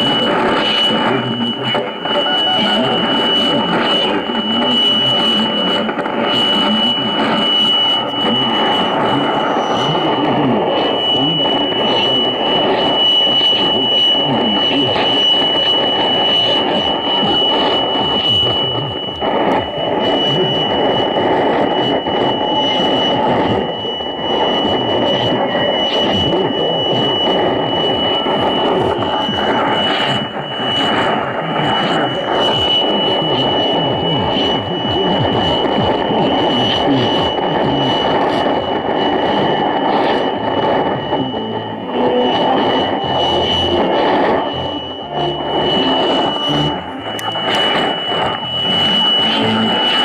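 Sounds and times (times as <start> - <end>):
high radio whistle: 0.0 - 50.0
radio static hiss: 0.0 - 50.0
high-pitched heterodyne whistle: 0.9 - 5.7, 41.2 - 50.0.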